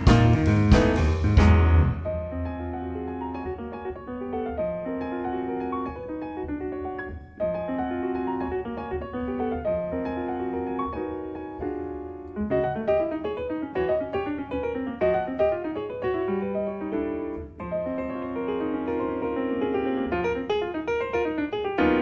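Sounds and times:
bass line: 0.0 - 2.5
jazz piano: 0.0 - 22.0.

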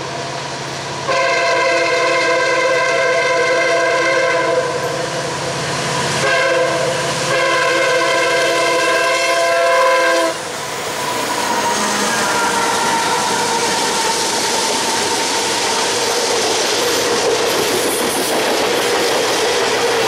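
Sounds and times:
train rumbling: 0.0 - 20.0
locomotive air horn: 1.1 - 4.8, 6.2 - 16.1.

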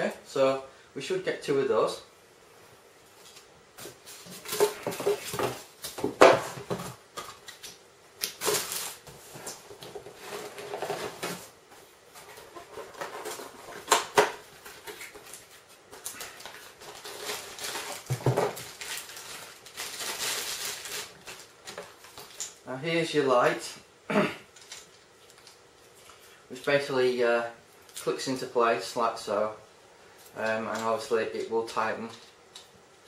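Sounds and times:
foam packing knocking and scraping: 16.9 - 19.0.

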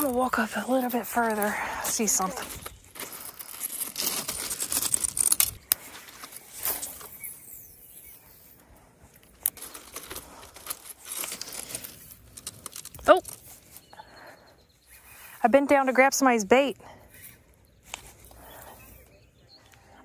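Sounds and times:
small stones clattering: 0.0 - 7.2, 9.4 - 13.9.

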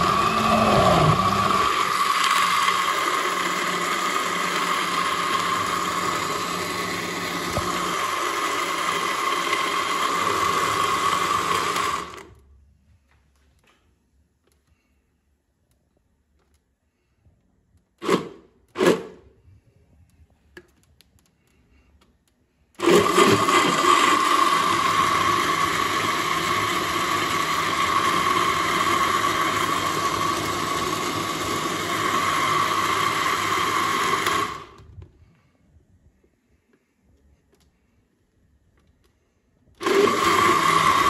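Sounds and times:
blender motor whining: 0.0 - 12.4, 18.0 - 19.2, 22.8 - 35.0, 39.8 - 41.0.

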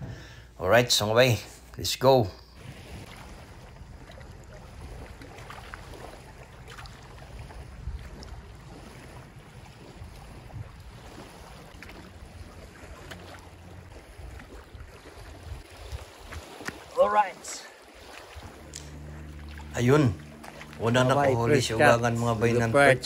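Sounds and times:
small waves lapping: 1.4 - 23.0
wind buffeting microphone: 2.6 - 17.0.

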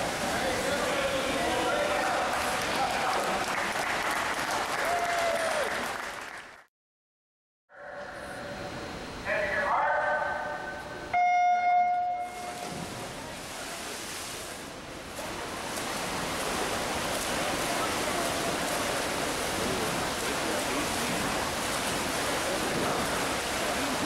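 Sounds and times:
swimmers splashing: 0.0 - 3.8, 12.2 - 24.0.

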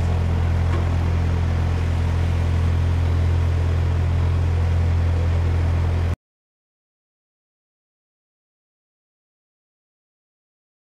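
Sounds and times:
engine idling: 0.0 - 6.2.

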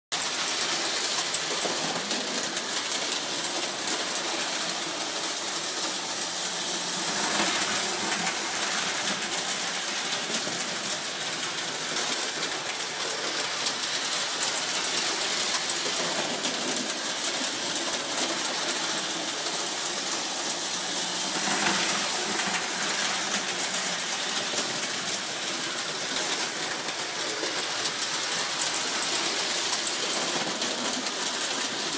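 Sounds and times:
wheels clattering on rails: 0.1 - 31.9
model train motor whirring: 0.2 - 31.9.

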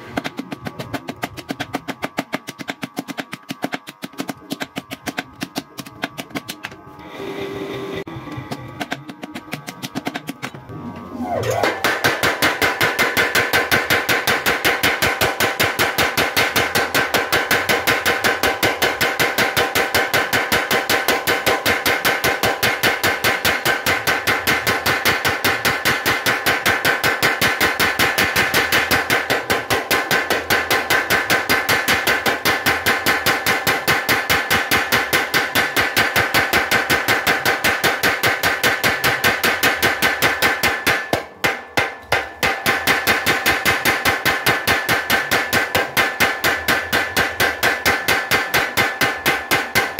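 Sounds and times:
power hammer striking steel: 11.2 - 49.9.

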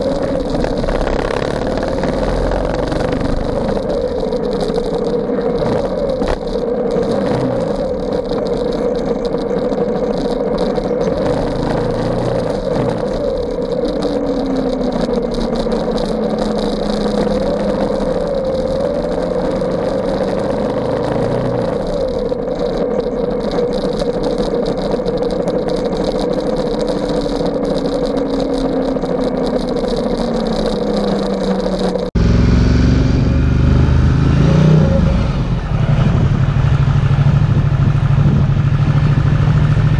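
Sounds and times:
motorcycle engine running: 0.0 - 39.9
road noise: 0.0 - 39.9
wind noise: 34.2 - 39.9.

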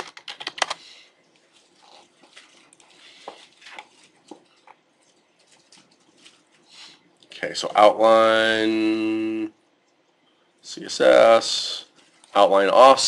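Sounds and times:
typing on computer keyboard: 0.0 - 0.8.

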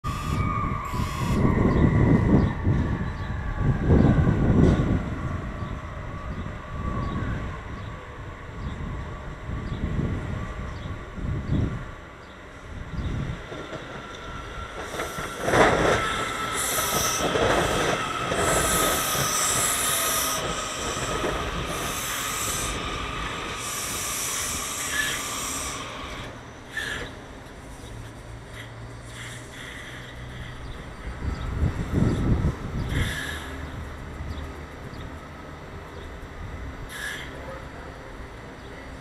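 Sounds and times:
train rail noise: 0.0 - 39.0
high brake squeal: 0.1 - 2.6, 23.5 - 27.2, 36.9 - 37.4
high hissing bursts: 15.1 - 26.2.

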